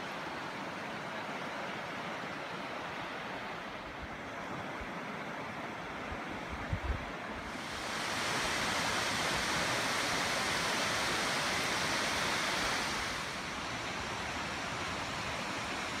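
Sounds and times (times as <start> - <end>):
river water rushing: 0.0 - 6.5, 7.1 - 16.0
waterfall splashing: 7.4 - 16.0.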